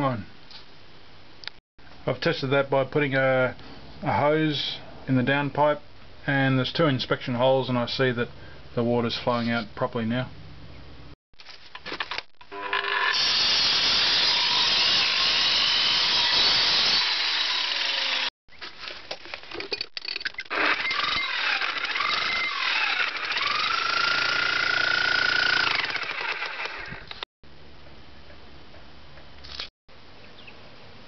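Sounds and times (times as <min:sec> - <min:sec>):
angle grinder cutting concrete: 0:12.5 - 0:18.3, 0:20.5 - 0:27.1
electric chipping hammer: 0:12.5 - 0:18.3, 0:20.5 - 0:27.2.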